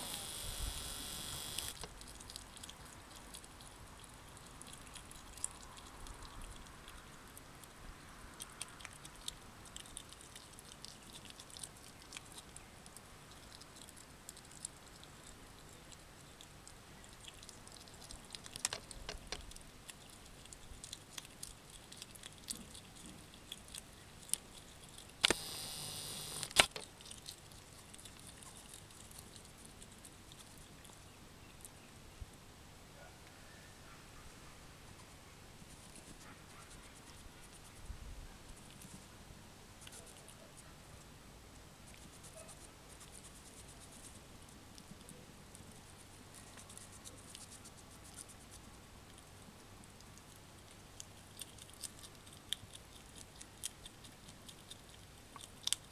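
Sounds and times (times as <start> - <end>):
loud steady hiss: 0.0 - 1.8, 25.2 - 26.6
hedgehog snuffling and foraging: 0.0 - 55.9
low steady hum: 0.0 - 55.9
faint clicks and ticks: 0.8 - 31.0
sharp click: 25.2 - 26.8.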